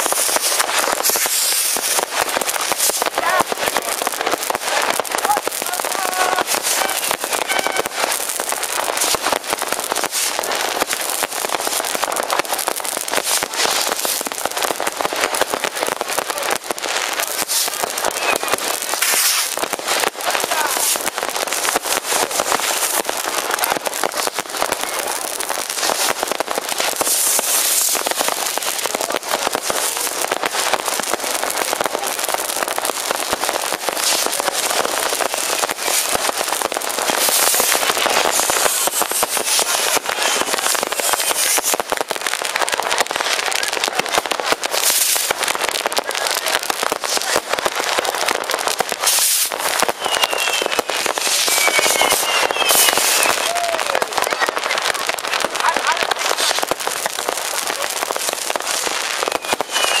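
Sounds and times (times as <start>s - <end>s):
firework whistles: 0.0s - 3.8s, 4.7s - 11.6s, 17.1s - 32.4s, 33.3s - 42.0s, 44.6s - 45.4s, 48.3s - 60.0s
firecrackers and rockets banging: 0.0s - 60.0s.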